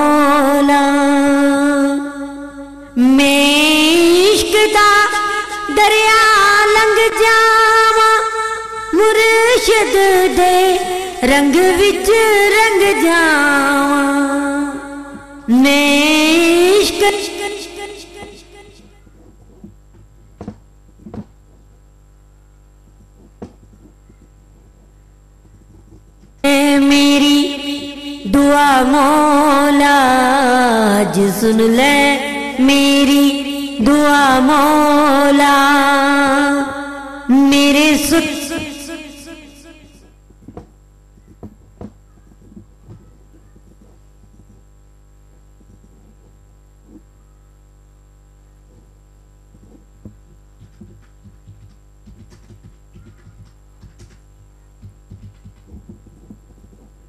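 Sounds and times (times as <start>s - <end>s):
sung vocal playback: 0.0s - 19.1s, 26.4s - 40.2s
low electrical hum with whine: 0.0s - 57.0s.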